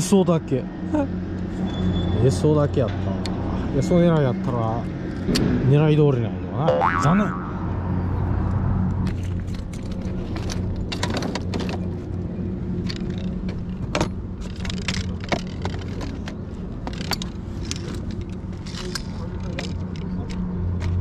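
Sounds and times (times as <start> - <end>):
fishing gear clicking and rattling: 12.8 - 21.0.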